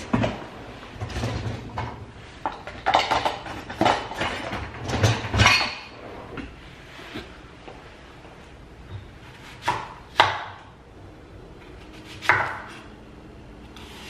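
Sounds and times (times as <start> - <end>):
cutlery clattering and clinking: 2.7 - 5.9.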